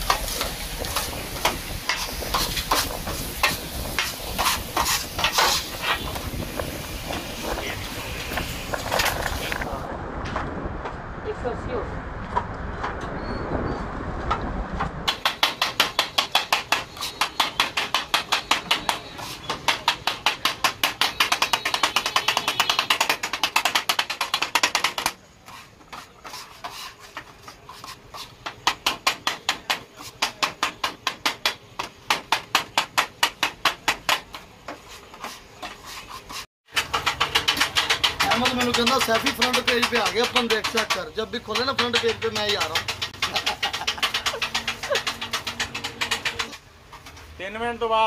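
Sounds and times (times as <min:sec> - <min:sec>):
metal spatula clattering on griddle: 0:15.1 - 0:25.2, 0:36.7 - 0:46.6.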